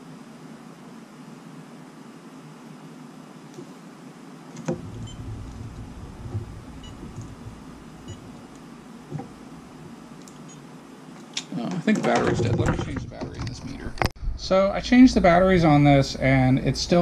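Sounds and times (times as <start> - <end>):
clicks: 4.6 - 10.6
low rumble: 4.8 - 9.9, 12.6 - 16.8
multimeter chirps: 4.9 - 8.5.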